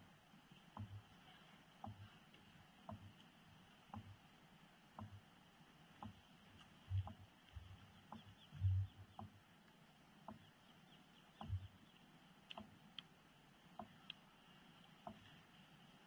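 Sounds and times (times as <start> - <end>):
soft clicks: 1.8 - 4.2, 6.0 - 16.0.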